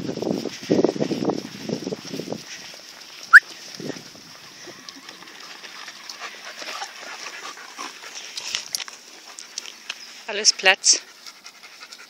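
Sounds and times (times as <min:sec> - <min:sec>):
light wind noise: 0:00.0 - 0:05.0.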